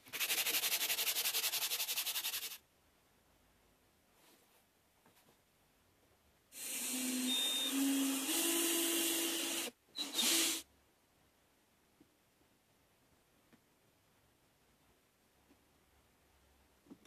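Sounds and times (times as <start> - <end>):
cordless drill boring into wood: 6.6 - 10.6.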